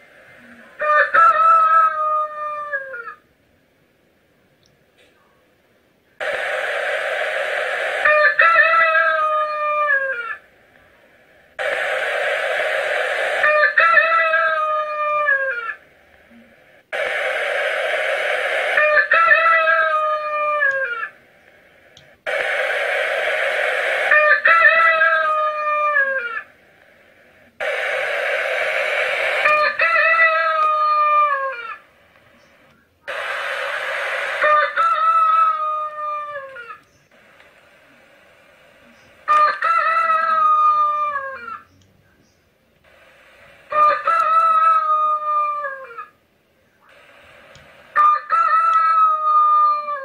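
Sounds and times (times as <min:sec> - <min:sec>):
rooster crowing: 0:00.7 - 0:03.2, 0:07.3 - 0:10.4, 0:11.6 - 0:15.9, 0:18.5 - 0:21.2, 0:23.4 - 0:26.6, 0:27.6 - 0:31.8, 0:33.1 - 0:36.8, 0:39.3 - 0:41.6, 0:43.6 - 0:46.2, 0:47.9 - 0:50.0.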